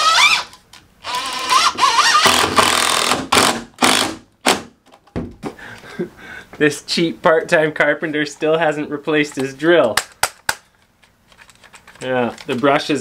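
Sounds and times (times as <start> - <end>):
impact driver driving screw: 0.0 - 4.7.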